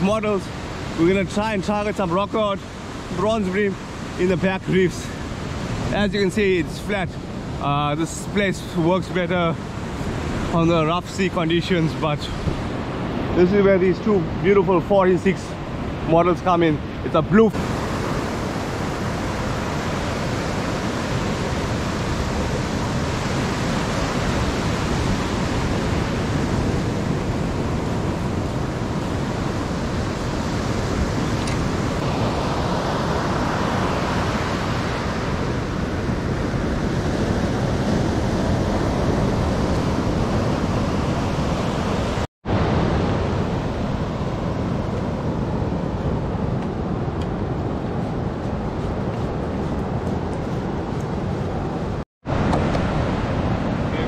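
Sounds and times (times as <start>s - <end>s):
wind on microphone: 15.2s - 54.0s
surf breaking on beach: 17.3s - 54.0s.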